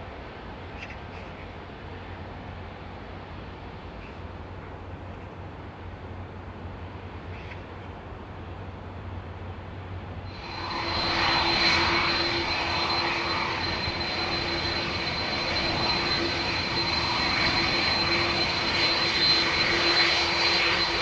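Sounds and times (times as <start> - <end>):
jet engines whining: 10.3 - 21.0.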